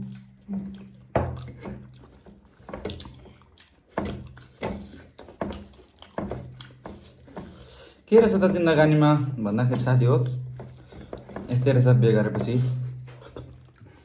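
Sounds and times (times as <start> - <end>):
wet mouth smacks and chewing: 0.0 - 8.0, 13.0 - 14.0.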